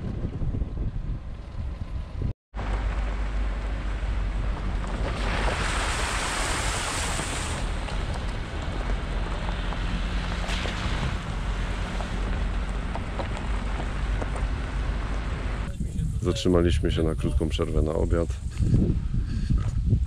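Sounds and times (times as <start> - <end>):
wind rushing over microphone: 0.0 - 2.3, 3.7 - 20.0
vehicle driving rumble: 0.0 - 16.9.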